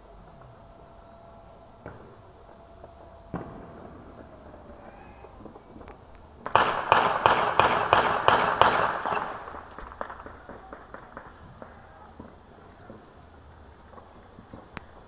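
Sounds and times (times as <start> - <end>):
loud echoing bangs: 1.7 - 13.3
faint scattered pops: 1.8 - 6.7, 9.0 - 15.0.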